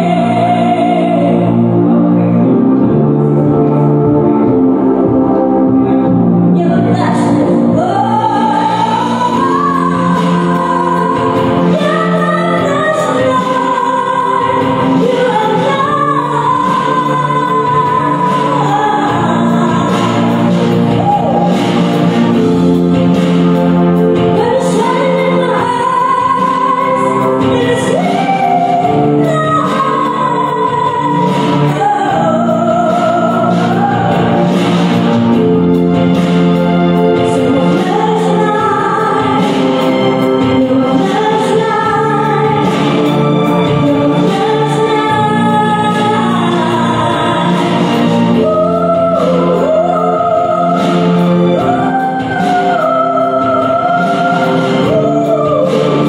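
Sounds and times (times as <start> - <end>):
woman singing into microphone: 0.0 - 36.4, 37.0 - 56.0
instrumental accompaniment: 0.0 - 56.0.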